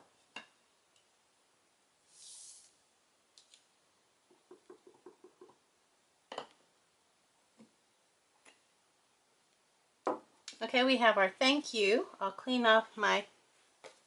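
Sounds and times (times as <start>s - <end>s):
plastic sliding hiss: 2.0s - 2.8s.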